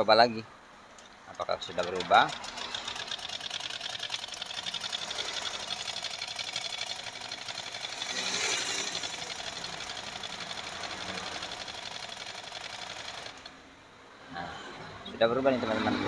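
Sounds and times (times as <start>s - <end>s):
sewing machine stitching: 1.6s - 13.6s.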